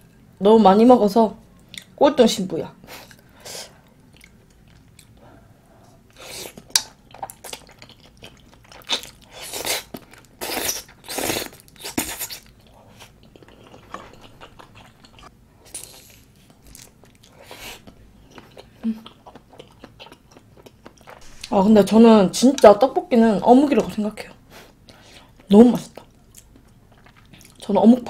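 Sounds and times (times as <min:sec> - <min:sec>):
chewing and slurping: 0:06.5 - 0:21.6.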